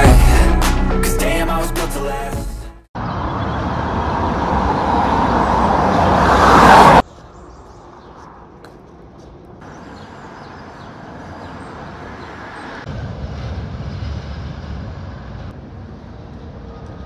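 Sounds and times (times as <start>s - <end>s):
road traffic rush: 3.0s - 17.0s
heavy low rumble: 12.9s - 17.0s.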